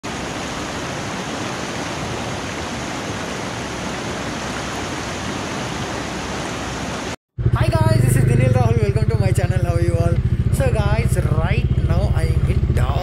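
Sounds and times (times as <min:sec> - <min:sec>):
river rushing over rapids: 0:00.0 - 0:07.2.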